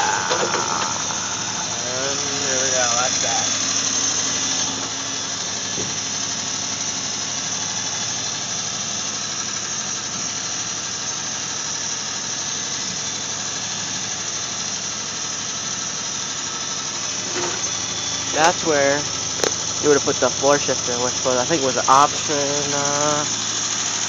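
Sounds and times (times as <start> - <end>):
high-pitched hiss: 0.0 - 4.8
car engine idling: 0.0 - 24.0.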